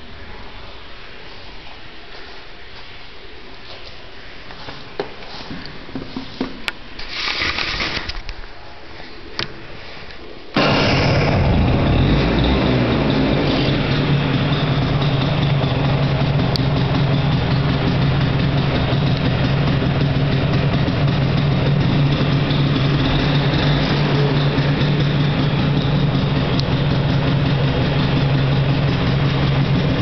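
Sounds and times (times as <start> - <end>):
scooter engine idling: 10.6 - 30.0.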